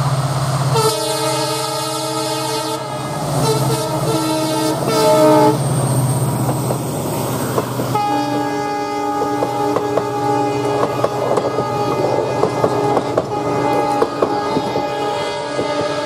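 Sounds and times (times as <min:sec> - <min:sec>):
locomotive engine running: 0:00.0 - 0:16.0
diesel locomotive horn blasts: 0:00.7 - 0:05.6, 0:07.8 - 0:16.0
train wheels clicking over rail joints: 0:04.8 - 0:16.0.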